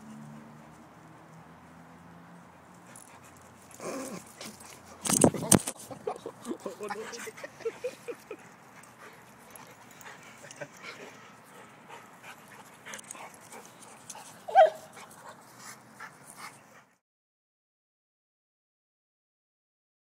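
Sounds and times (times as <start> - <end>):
dog panting: 2.3 - 17.0
dog yelp: 14.5 - 14.9.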